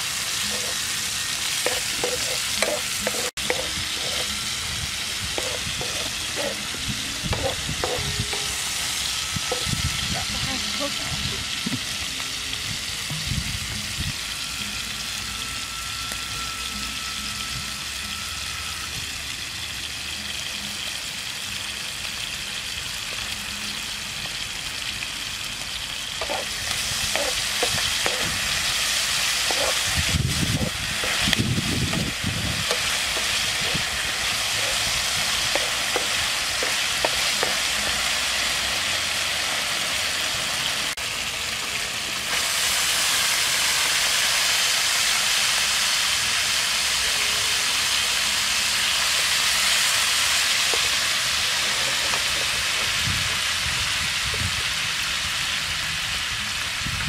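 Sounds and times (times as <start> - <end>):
meat sizzling in a frying pan: 0.0 - 57.0
spatula scraping and tapping pan: 1.6 - 4.3, 5.3 - 6.7, 7.3 - 8.5, 26.2 - 26.5, 27.1 - 28.4, 29.5 - 29.8, 34.5 - 37.6.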